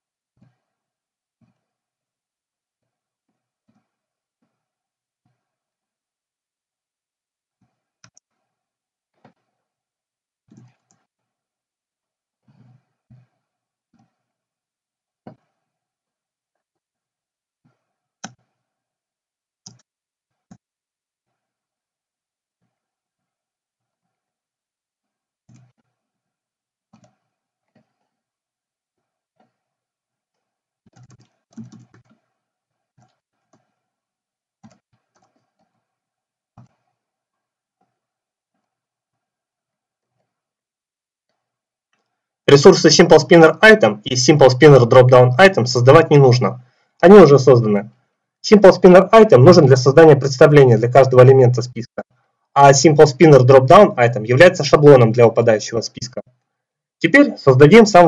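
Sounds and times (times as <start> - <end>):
faint keyboard keystrokes: 30.9 - 32.2.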